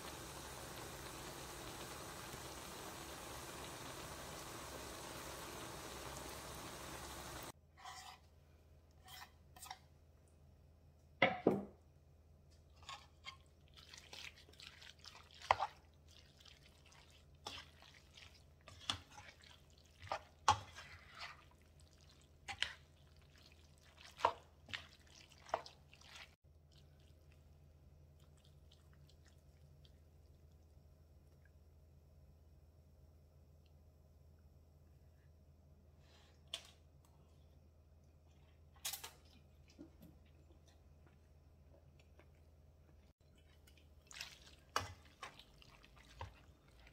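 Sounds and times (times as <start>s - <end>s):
steady hiss: 0.0s - 7.5s
utensils stirring pasta in pan: 12.7s - 26.4s, 43.2s - 46.9s.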